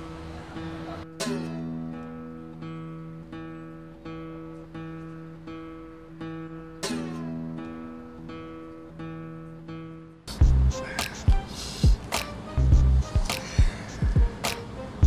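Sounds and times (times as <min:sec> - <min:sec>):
strummed guitar chord: 0:00.0 - 0:11.4
acoustic guitar picking notes: 0:00.0 - 0:15.0.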